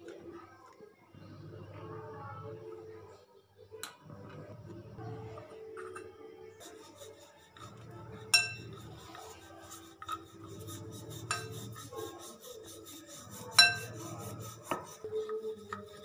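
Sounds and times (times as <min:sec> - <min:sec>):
hands rubbing and patting dough: 0:06.6 - 0:16.0.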